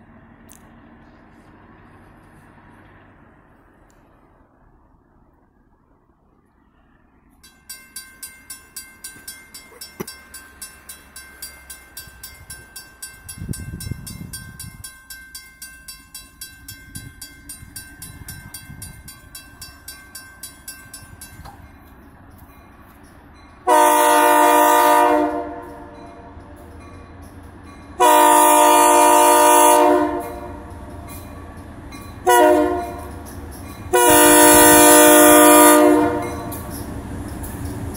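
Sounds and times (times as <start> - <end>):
crossing warning bell ringing: 7.3 - 37.9
locomotive air horn blast: 23.6 - 26.0, 28.0 - 30.7, 32.2 - 33.1, 33.9 - 36.6.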